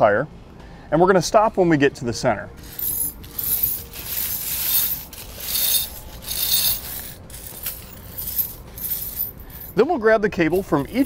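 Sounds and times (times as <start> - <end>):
tire chains clinking on concrete: 2.6 - 9.8, 10.6 - 11.0.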